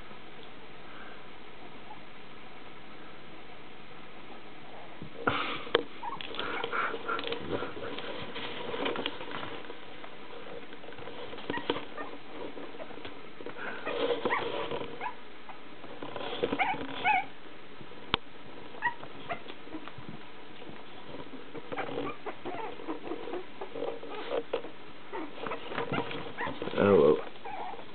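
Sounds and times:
soft scuffling: 5.9 - 15.2, 18.5 - 27.9
puppies squeaking and whimpering: 6.0 - 8.0, 11.4 - 13.0, 13.6 - 15.6, 16.3 - 17.3, 18.8 - 19.9, 21.7 - 27.9.

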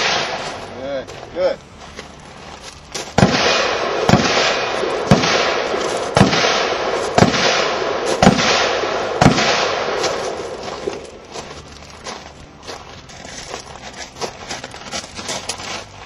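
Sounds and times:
rifle gunshots echoing: 0.0 - 1.0, 3.2 - 11.2.

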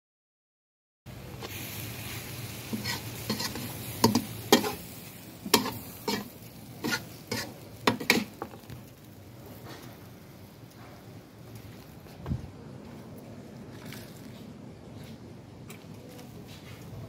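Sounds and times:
food sizzling in a hot pan: 1.2 - 9.1
metal spatula scraping a wok: 2.2 - 8.6.

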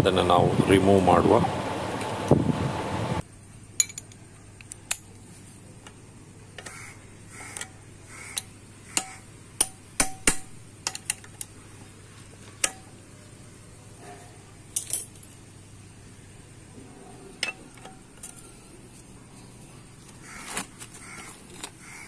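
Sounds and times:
metal spanner clicking on nuts: 3.8 - 5.1, 8.4 - 11.5.

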